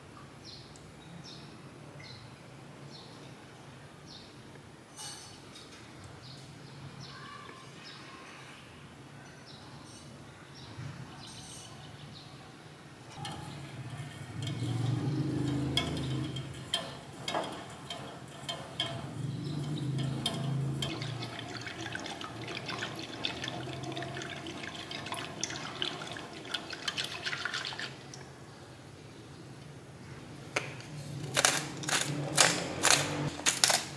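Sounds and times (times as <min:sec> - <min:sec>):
whisk stirring liquid in saucepan: 0:13.2 - 0:28.2.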